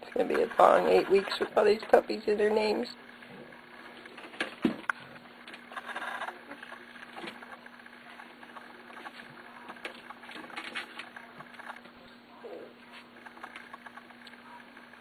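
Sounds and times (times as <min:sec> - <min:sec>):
steady low hum: 0:00.0 - 0:15.0
puppies scrabbling on bedding: 0:03.2 - 0:11.8.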